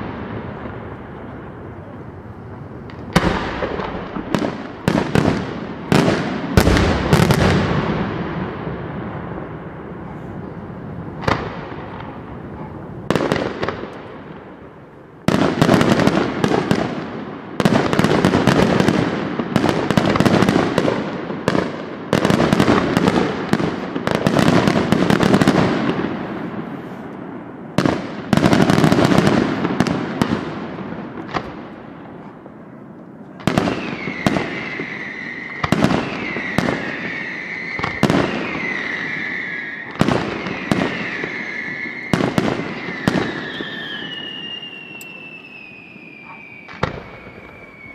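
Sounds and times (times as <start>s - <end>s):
firework bangs: 0.0s - 47.9s
firework crackling: 0.0s - 47.9s
wavering firework whistle: 33.4s - 47.9s.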